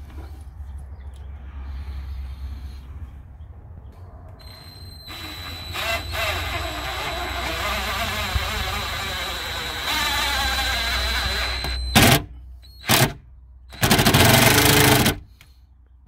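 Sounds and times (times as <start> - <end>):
cordless drill boring into plywood: 4.4 - 15.2.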